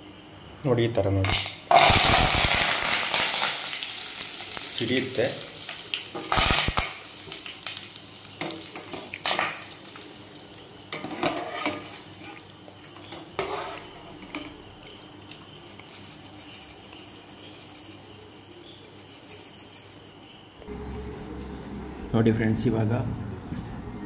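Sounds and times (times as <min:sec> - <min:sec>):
leaves sizzling in hot oil: 0:01.3 - 0:20.0
strainer scraping and clinking on pot: 0:11.0 - 0:12.4.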